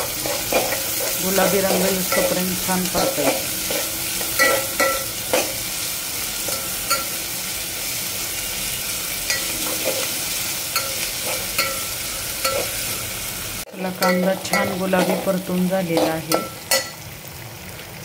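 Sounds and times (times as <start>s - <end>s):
metal spatula scraping a pot: 0.0s - 5.7s, 9.2s - 13.0s, 14.0s - 16.9s
onions sizzling in hot oil: 0.0s - 18.0s.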